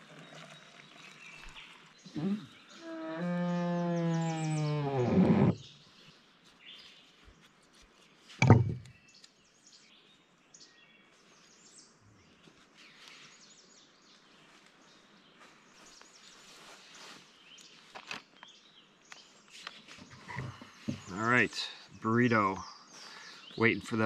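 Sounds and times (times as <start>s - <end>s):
songbird chirps: 0.0s - 24.0s
loud short thump: 8.4s - 8.9s.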